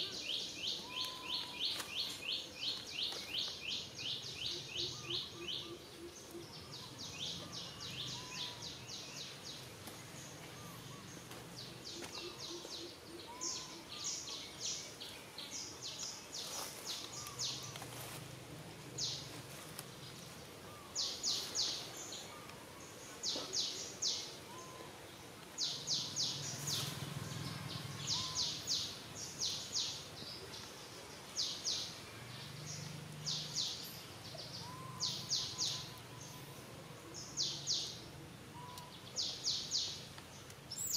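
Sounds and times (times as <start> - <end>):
soft low bird calls: 0.0 - 18.2, 18.8 - 40.9
birds chirping rapidly: 20.0 - 40.9.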